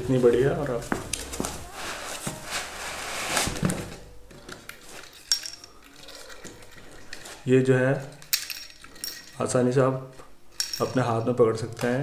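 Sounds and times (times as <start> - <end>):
scraping and rubbing against foam: 1.7 - 3.6.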